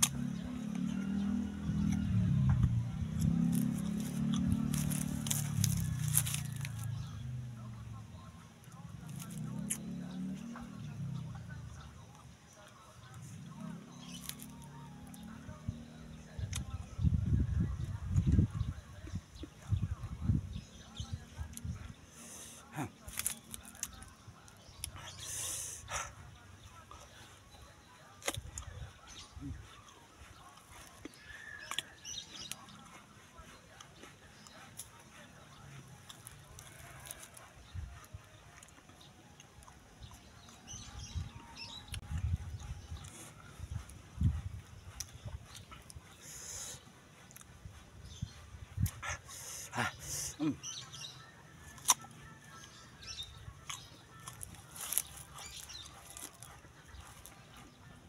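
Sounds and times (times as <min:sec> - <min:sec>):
crunch of biting hard fruit: 0:00.0 - 0:07.5, 0:08.7 - 0:10.8, 0:13.2 - 0:15.5, 0:16.5 - 0:16.9, 0:21.4 - 0:26.2, 0:28.1 - 0:28.7, 0:30.6 - 0:33.0, 0:36.0 - 0:37.4, 0:45.0 - 0:47.5, 0:51.6 - 0:52.2, 0:53.6 - 0:57.4
chewing: 0:00.0 - 0:16.9, 0:20.8 - 0:58.0
crisp bite into mango: 0:03.2 - 0:07.0, 0:09.0 - 0:09.9, 0:14.1 - 0:14.6, 0:23.0 - 0:24.1, 0:28.2 - 0:28.7, 0:36.1 - 0:37.4, 0:51.6 - 0:52.1, 0:53.6 - 0:56.5.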